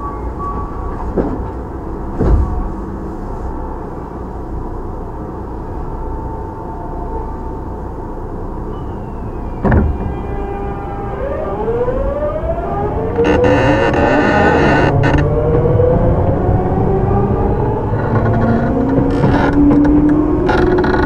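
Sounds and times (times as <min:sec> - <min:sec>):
train inverter whine rising: 0:00.0 - 0:20.9
thump: 0:02.2 - 0:02.7, 0:09.6 - 0:10.1.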